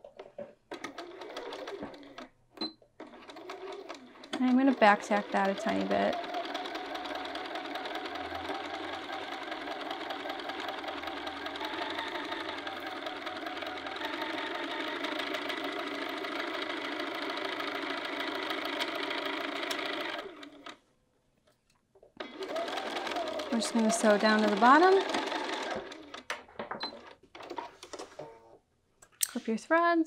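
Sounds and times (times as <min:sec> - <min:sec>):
sewing machine running: 0:00.8 - 0:02.3, 0:03.0 - 0:20.8, 0:22.2 - 0:26.3.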